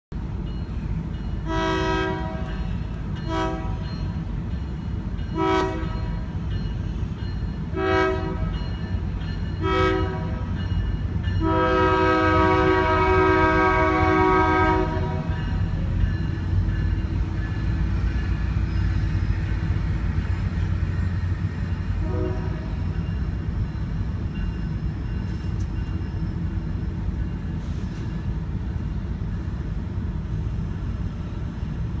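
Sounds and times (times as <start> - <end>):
train rumbling past: 0.1 - 32.0
train horn chord: 1.4 - 4.0, 5.3 - 6.3, 7.7 - 8.7, 9.6 - 10.6, 11.4 - 15.6, 22.0 - 22.8.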